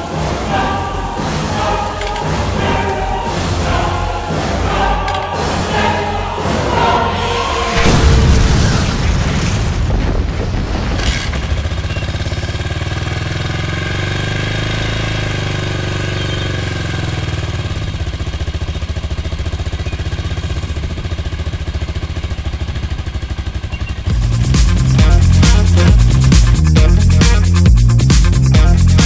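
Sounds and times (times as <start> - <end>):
motorcycle engine idling: 11.4 - 29.0.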